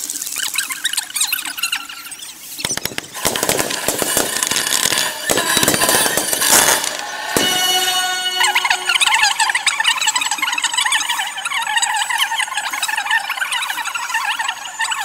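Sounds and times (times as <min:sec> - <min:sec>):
fireworks high squealing: 0:00.4 - 0:15.0
fireworks bangs and crackles: 0:02.1 - 0:09.6.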